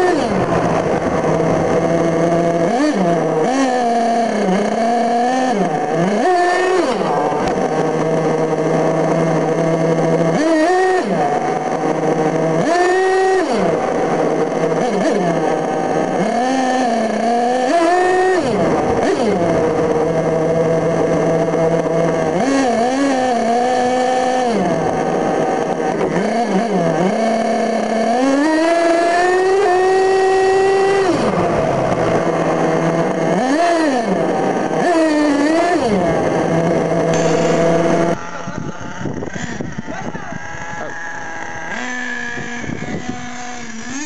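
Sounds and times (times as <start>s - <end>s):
small two-stroke engine revving: 0.0s - 44.0s.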